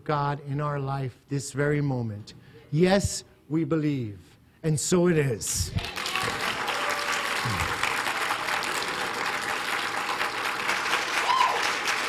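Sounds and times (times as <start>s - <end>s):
congregation applauding: 5.8s - 12.0s.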